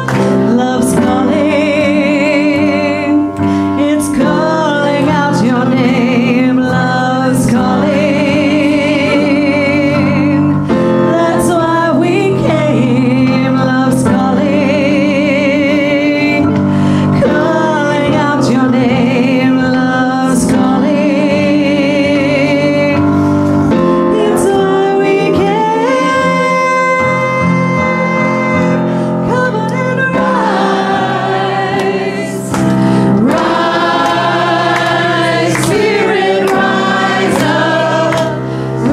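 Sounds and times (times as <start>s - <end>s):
church choir singing: 0.0s - 16.5s, 24.1s - 27.0s, 29.7s - 38.9s
solo woman singing: 0.0s - 23.1s, 24.1s - 31.0s
keyboard accompaniment: 0.0s - 38.9s.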